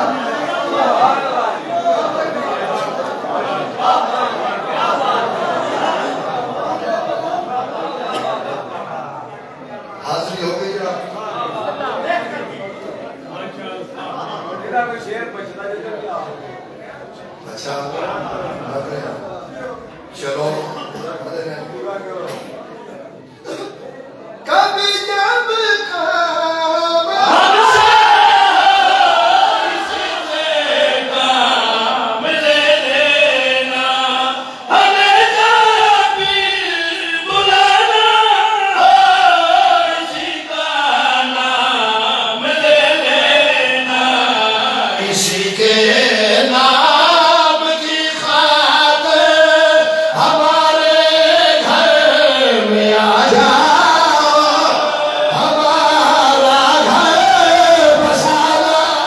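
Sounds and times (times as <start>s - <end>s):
men singing a devotional chant: 24.5s - 59.0s.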